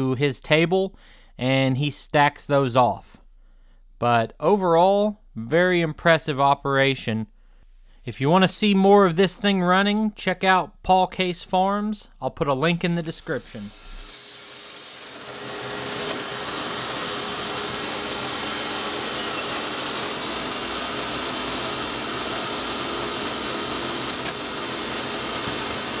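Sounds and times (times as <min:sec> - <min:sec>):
band sawmill running: 0:12.8 - 0:26.0.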